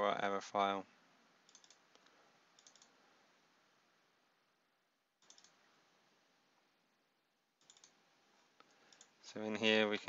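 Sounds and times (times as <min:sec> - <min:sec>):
faint computer mouse clicks: 0:01.5 - 0:03.0, 0:05.2 - 0:05.6, 0:07.6 - 0:08.0, 0:08.6 - 0:09.1.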